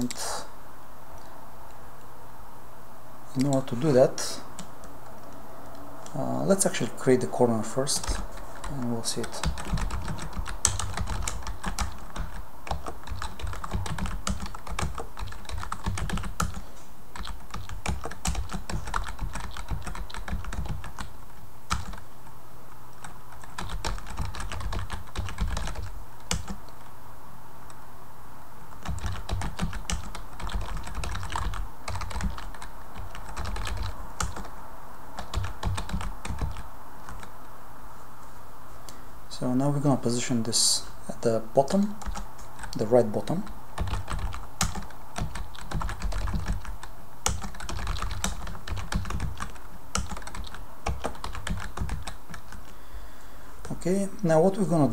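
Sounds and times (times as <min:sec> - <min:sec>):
typing on computer keyboard: 0:08.0 - 0:16.6, 0:17.2 - 0:21.1, 0:21.7 - 0:22.0, 0:23.0 - 0:26.6, 0:28.8 - 0:34.5, 0:35.2 - 0:37.3, 0:42.0 - 0:42.8, 0:43.8 - 0:52.7.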